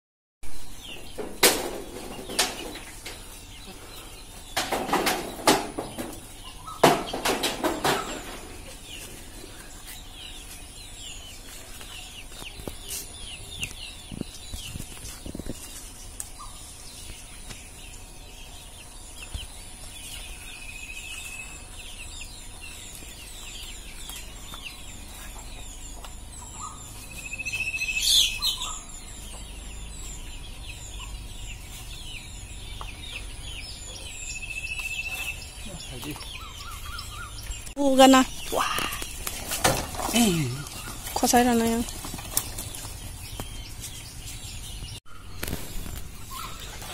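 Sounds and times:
small birds chirping: 0.5s - 46.9s
leaves rustling: 34.9s - 46.9s
loud bird call: 38.4s - 39.2s
pole knocking branches: 38.8s - 42.8s.

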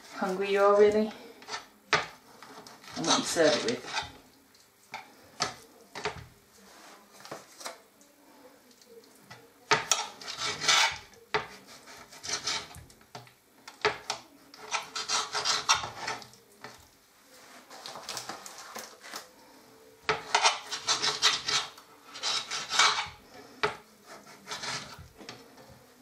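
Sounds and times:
knife scraping glass board: 2.4s - 4.2s, 9.7s - 12.8s, 13.8s - 16.3s, 20.1s - 25.8s.

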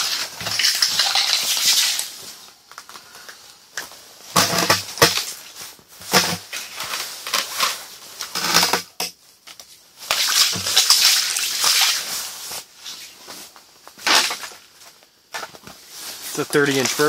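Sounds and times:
fish slapping on wet ice: 0.0s - 2.3s, 10.1s - 12.1s.

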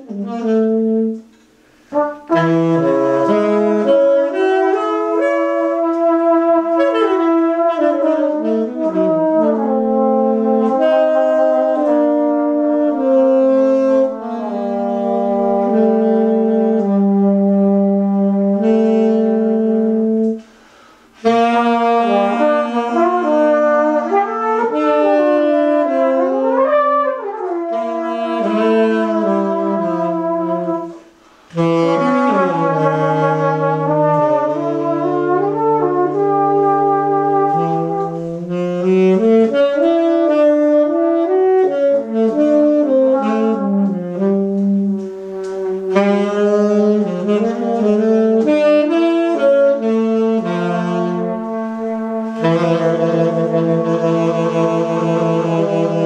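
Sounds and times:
saxophone: 0.0s - 56.0s
trumpet: 0.0s - 56.0s.

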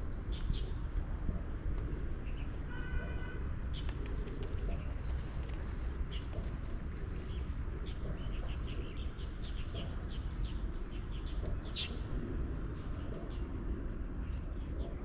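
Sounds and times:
steady low rumble: 3.5s - 15.0s
small birds chirping: 3.7s - 15.0s.

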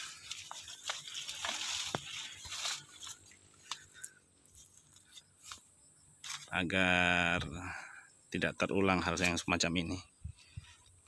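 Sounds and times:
leaves and dry grass crunching: 0.0s - 6.7s.

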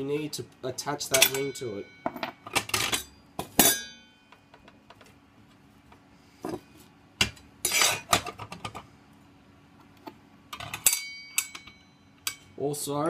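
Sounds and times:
metal clinks and clanks: 10.6s - 12.5s.

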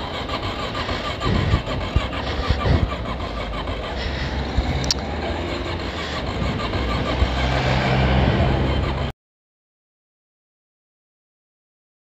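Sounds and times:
quad bike engine running: 0.0s - 9.1s.

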